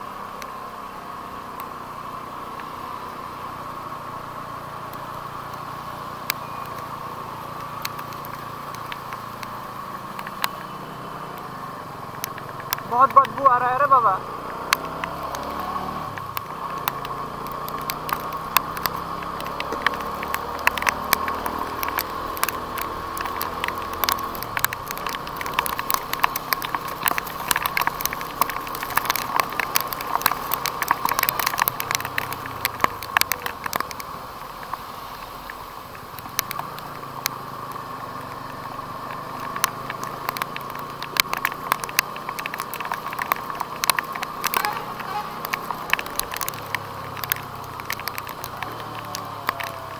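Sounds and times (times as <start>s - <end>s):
motorcycle engine running: 0.0s - 34.6s
raindrops ticking on camera: 0.1s - 49.9s.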